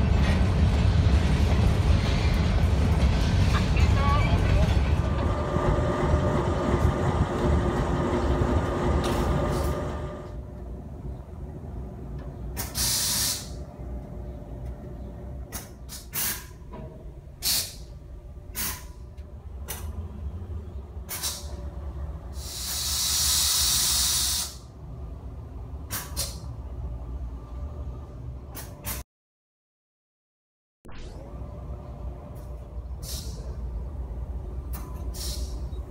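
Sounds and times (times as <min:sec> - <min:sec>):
diesel locomotive idling: 0:00.0 - 0:28.4, 0:31.4 - 0:35.9
air brake hissing: 0:12.6 - 0:13.6, 0:15.6 - 0:16.6, 0:17.4 - 0:17.9, 0:18.5 - 0:19.1, 0:21.1 - 0:21.6, 0:22.3 - 0:24.7, 0:25.9 - 0:26.6, 0:33.0 - 0:33.7, 0:34.9 - 0:35.8.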